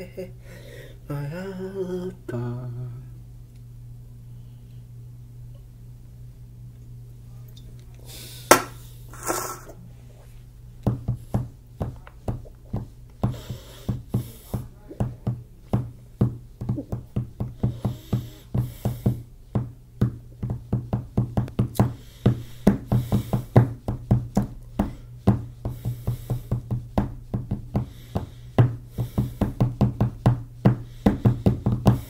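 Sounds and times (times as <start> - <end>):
hands drumming on a desktop: 10.8 - 32.0.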